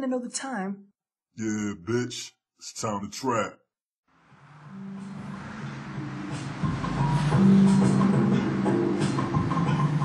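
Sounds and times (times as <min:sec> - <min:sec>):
song with sustained tones: 0:04.2 - 0:10.0.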